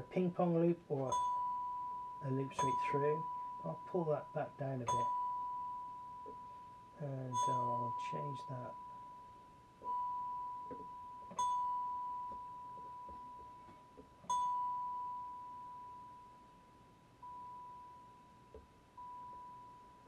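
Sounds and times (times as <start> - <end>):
synthesized celesta note: 1.0 - 13.7.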